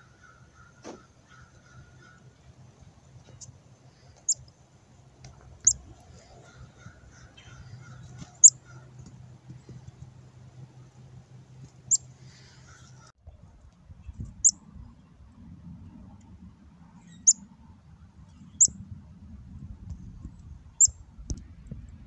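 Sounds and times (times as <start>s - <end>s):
chickadee calls: 0.0s - 2.5s, 5.6s - 9.8s, 17.0s - 17.4s.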